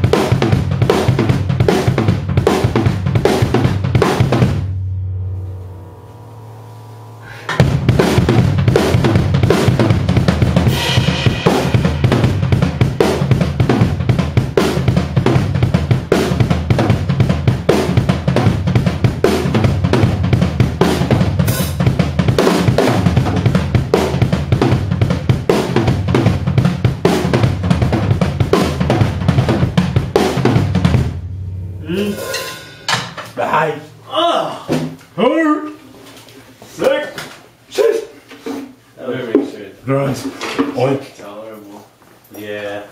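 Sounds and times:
cymbals: 2.6 - 14.0, 28.6 - 35.0
snare drum: 7.5 - 31.1.

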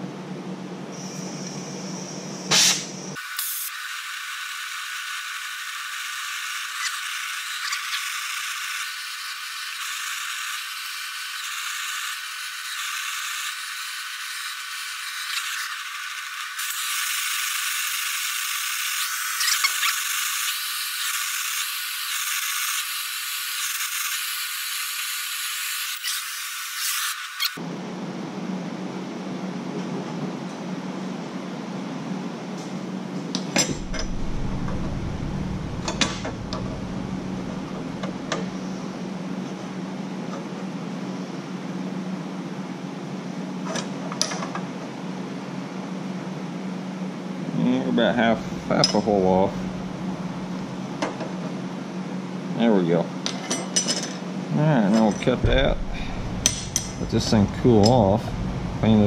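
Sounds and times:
gas torch burning: 1.0 - 27.6, 33.3 - 39.5, 48.1 - 51.6, 55.0 - 59.0
sharp metal clank: 55.1 - 58.1.

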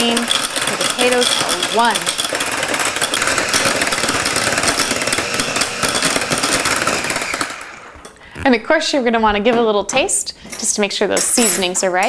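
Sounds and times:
electric hand mixer whirring: 0.0 - 8.5.

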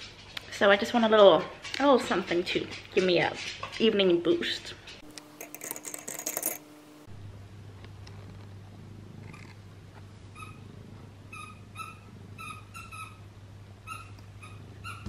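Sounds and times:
cat purring: 8.1 - 11.3.

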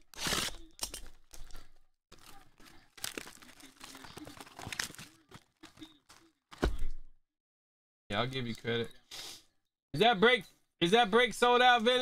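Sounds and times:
foil wrappers crinkling and tearing: 0.0 - 6.5.

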